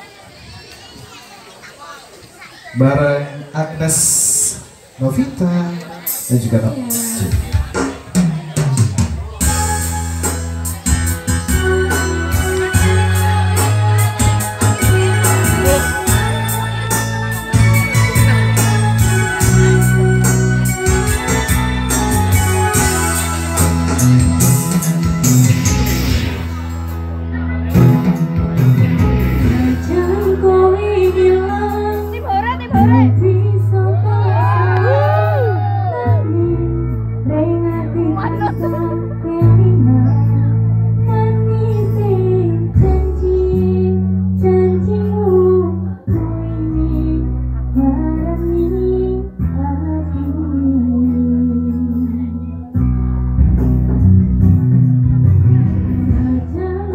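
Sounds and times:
amplified instrumental backing: 3.1 - 56.9
electronic keyboard organ chords: 6.1 - 56.9
bass line: 6.3 - 56.9
steady drum beat: 6.9 - 26.7
woman singing into microphone: 11.6 - 16.9, 29.4 - 52.6, 56.1 - 56.9.

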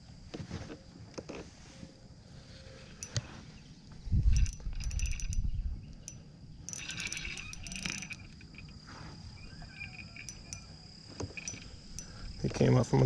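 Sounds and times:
fishing reel clicking: 4.3 - 8.8, 9.8 - 12.3.

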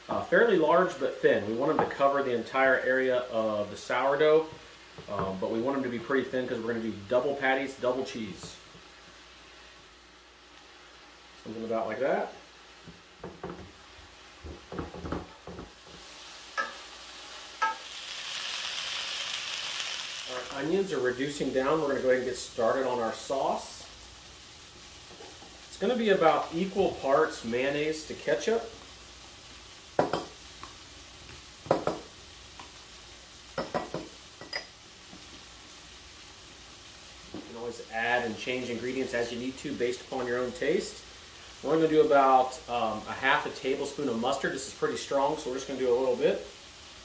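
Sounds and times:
onions sizzling in oil: 0.0 - 47.0
wooden spoon knocking skillet: 12.8 - 13.8, 14.4 - 16.0, 30.0 - 30.8, 31.6 - 32.7, 33.6 - 35.3.

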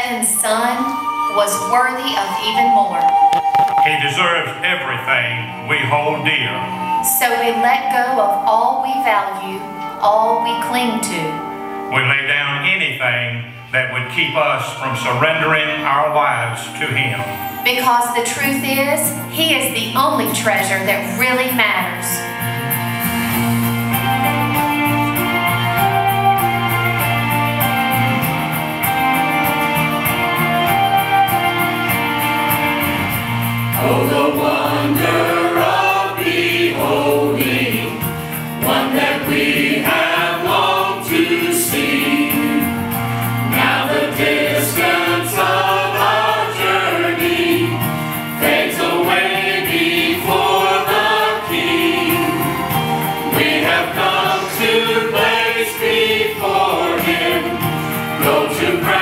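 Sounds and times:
church choir singing: 0.0 - 12.6, 13.4 - 59.0
instrumental accompaniment held notes: 0.0 - 59.0.

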